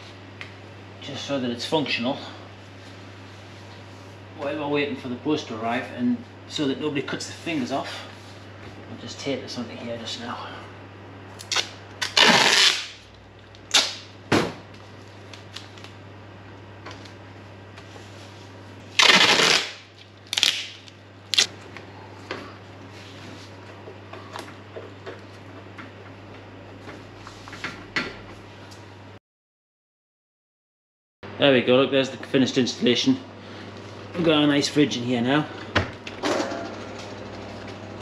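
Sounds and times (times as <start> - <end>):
adhesive tape ripping: 11.4 - 13.0, 13.7 - 14.1, 19.0 - 21.5.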